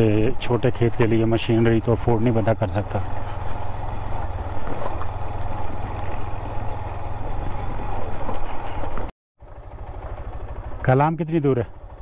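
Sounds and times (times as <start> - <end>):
motorcycle engine running: 0.0 - 12.0
rattle and knocking from bumps: 2.9 - 9.1.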